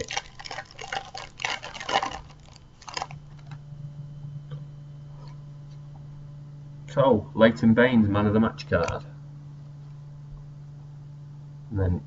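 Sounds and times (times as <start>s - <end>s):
plastic wrapper tearing and crinkling: 0.0s - 3.6s
low hum: 0.0s - 12.0s.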